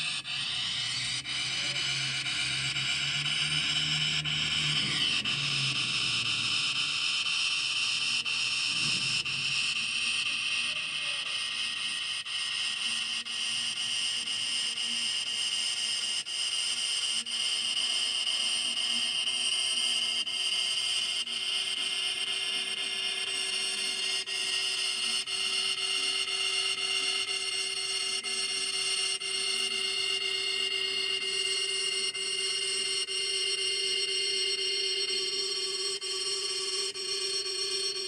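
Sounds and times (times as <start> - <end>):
low tone: 0.0 - 11.4.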